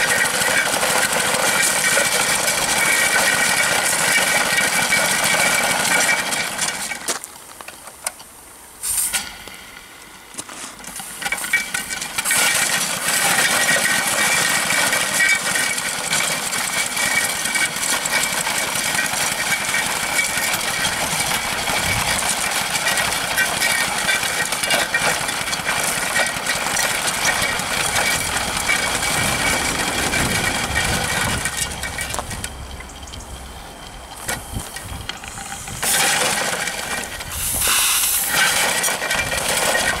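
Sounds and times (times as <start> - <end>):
steam engine running: 0.0 - 7.1, 10.8 - 40.0
steam hissing: 8.8 - 11.9, 25.3 - 38.9.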